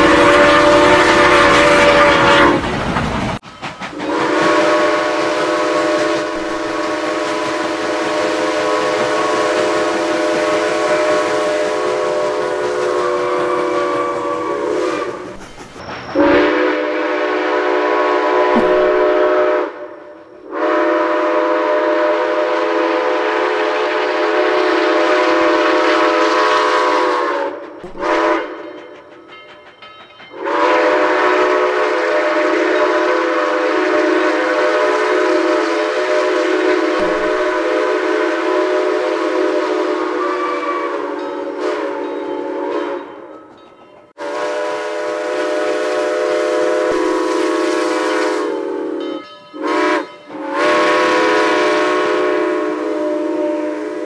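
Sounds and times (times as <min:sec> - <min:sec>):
steam locomotive whistle blasts: 0:00.0 - 0:02.7, 0:03.9 - 0:29.0, 0:30.3 - 0:43.3, 0:44.2 - 0:54.0
train rumble: 0:00.0 - 0:54.0.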